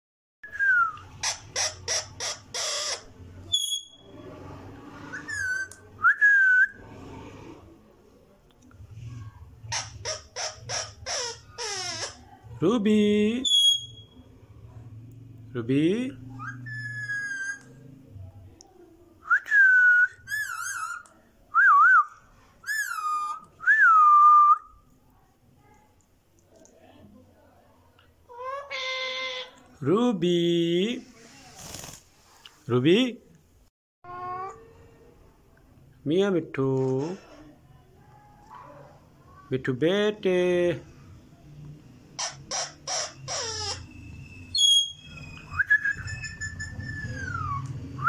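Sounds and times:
parakeet squawking: 1.1s - 4.0s, 9.7s - 12.4s, 28.3s - 29.6s, 42.2s - 45.2s
parakeet whistling: 13.4s - 14.2s, 16.4s - 17.7s, 42.2s - 48.0s.

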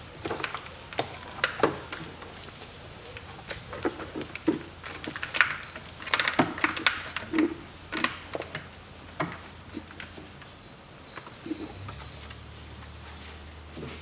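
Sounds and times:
wiring harness clicks and rattles: 0.0s - 10.4s.

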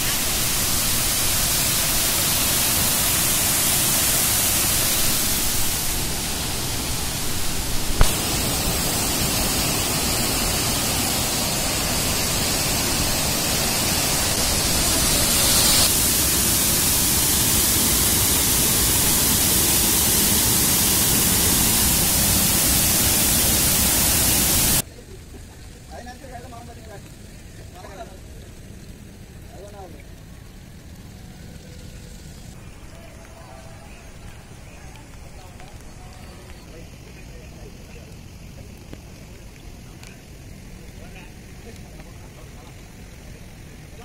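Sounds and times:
water rushing over weir: 0.0s - 24.8s.

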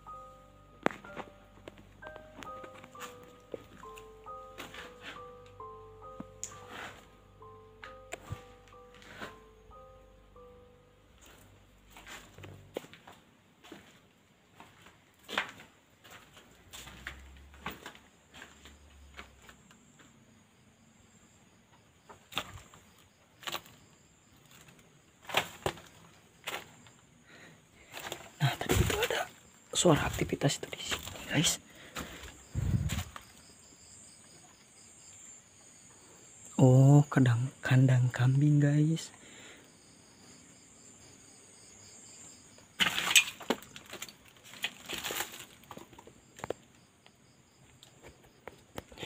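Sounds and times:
cricket chirping: 0.0s - 49.0s
footsteps crunching on rubble: 11.2s - 19.6s, 24.4s - 26.9s, 27.8s - 33.4s, 42.8s - 46.6s
scuffling on debris: 11.2s - 19.6s, 24.4s - 27.0s, 27.8s - 33.4s, 42.8s - 46.4s.

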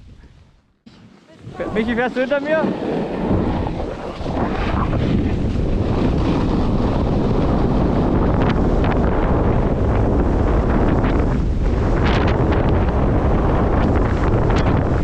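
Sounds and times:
ski edge scrapes: 0.9s - 7.3s
skis sliding on snow: 0.9s - 15.0s
wind rushing over microphone: 1.4s - 15.0s.

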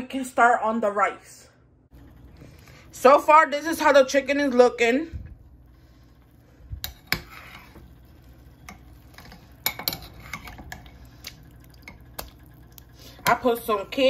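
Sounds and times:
metal spoon clinking against pot: 8.6s - 10.9s.

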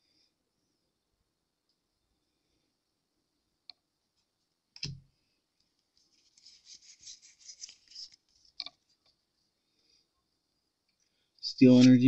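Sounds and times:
cards rustling and shuffling: 5.9s - 9.0s.

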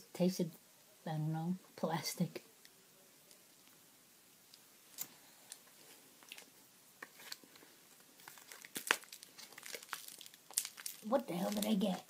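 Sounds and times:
person chewing crunchy candy: 8.2s - 12.0s.

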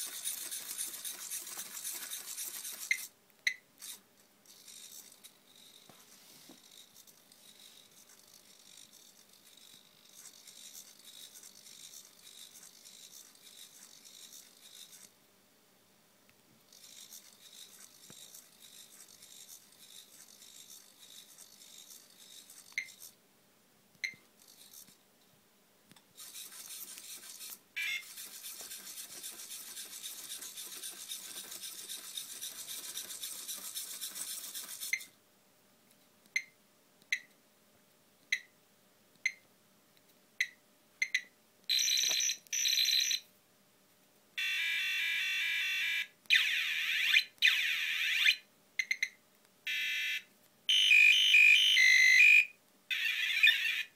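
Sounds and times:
small servo motors whirring: 0.0s - 3.1s, 3.8s - 15.1s, 16.7s - 23.2s, 24.4s - 25.0s, 26.2s - 35.1s, 52.9s - 53.9s.

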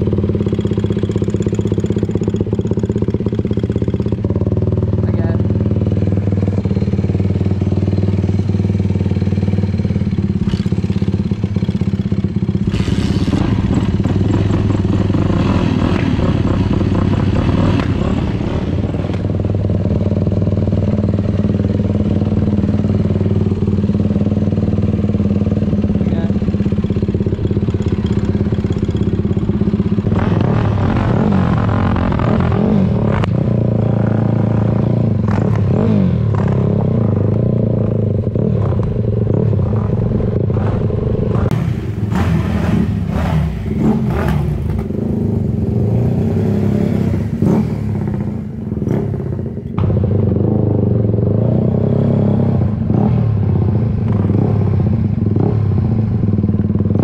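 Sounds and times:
dirt bike engine revving: 10.3s - 20.0s, 20.8s - 56.0s.

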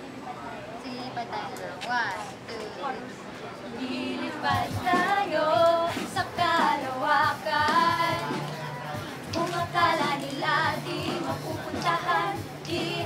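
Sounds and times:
women singing together: 3.7s - 13.0s.

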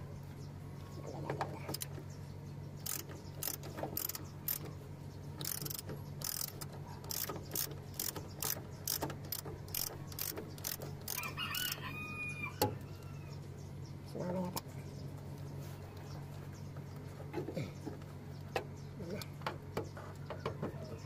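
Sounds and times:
ratchet wrench clicking: 2.8s - 4.7s, 5.4s - 11.8s.

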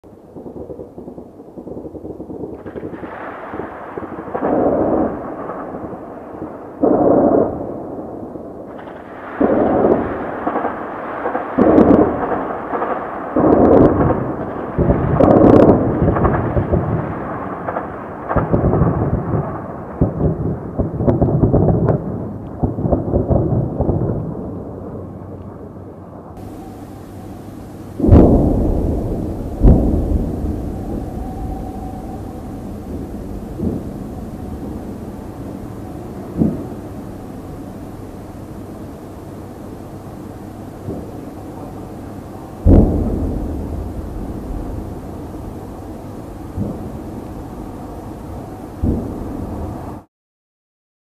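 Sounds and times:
distant explosions: 0.2s - 38.8s, 42.6s - 47.6s
distant gunfire: 28.0s - 36.9s.

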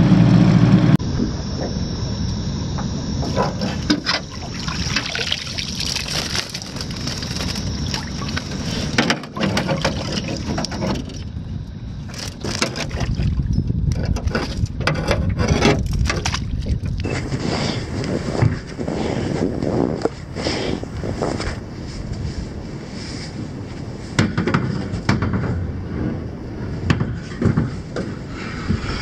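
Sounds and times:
wind on microphone: 0.6s - 29.0s
water splashing: 4.2s - 11.1s.

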